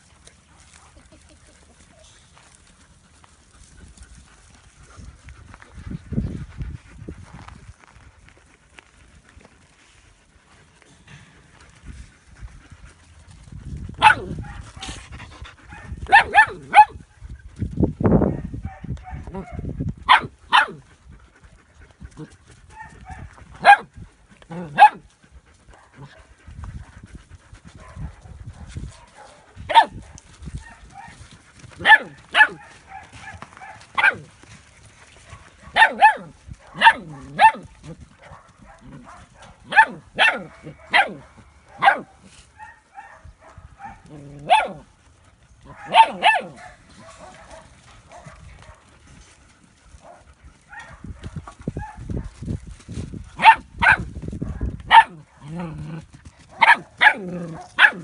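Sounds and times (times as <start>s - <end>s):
paws scuffling on gravel: 0.0s - 19.6s, 20.8s - 58.0s
dog barking: 14.0s - 14.9s, 15.7s - 17.0s, 18.3s - 20.8s, 22.8s - 23.9s, 24.6s - 25.0s, 27.8s - 30.0s, 31.8s - 34.3s, 35.3s - 44.8s, 45.7s - 48.8s, 50.0s - 51.0s, 53.4s - 55.2s, 56.5s - 58.0s.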